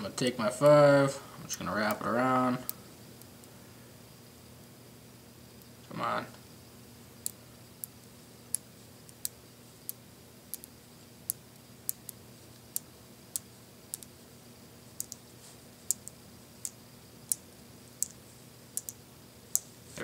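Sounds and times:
magnet spheres clicking: 0:07.2 - 0:14.2, 0:14.9 - 0:15.2, 0:15.8 - 0:17.4, 0:18.0 - 0:19.7.

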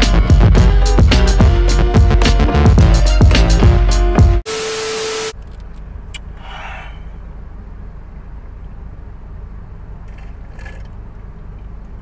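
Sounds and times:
car engine idling: 0:05.4 - 0:12.0.

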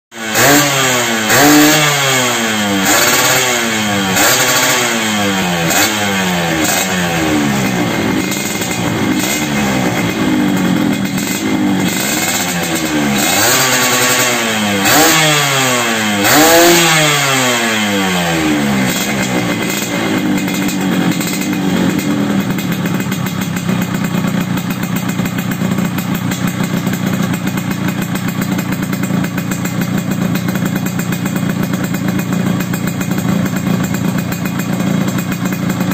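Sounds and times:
motorcycle engine revving: 0:00.1 - 0:35.9
motorcycle engine idling: 0:02.4 - 0:35.9.

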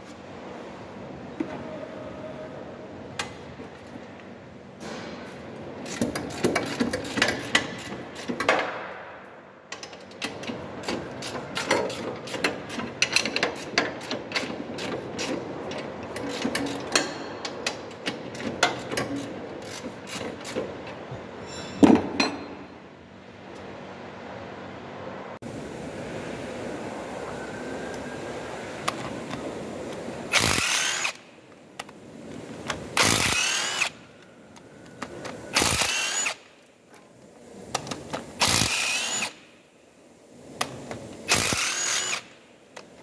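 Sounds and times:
spanner clicking on bolt head: 0:05.8 - 0:08.7, 0:09.7 - 0:21.0.

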